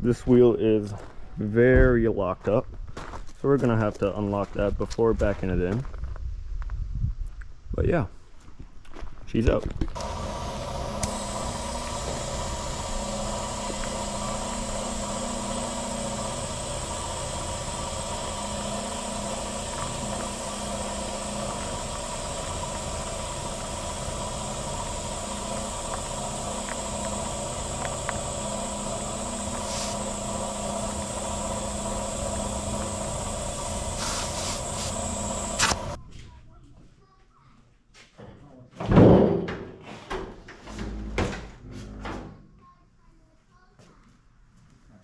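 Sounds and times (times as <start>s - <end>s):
air compressor running: 10.0s - 36.0s
air hose inflating tyre: 10.0s - 36.0s.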